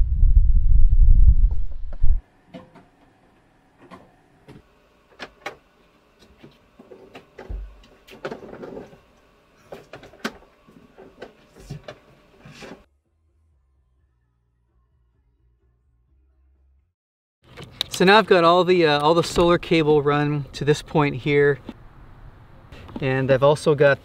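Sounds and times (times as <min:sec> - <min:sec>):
low thump: 0:00.0 - 0:02.2
wind rumble on microphone: 0:00.0 - 0:02.2.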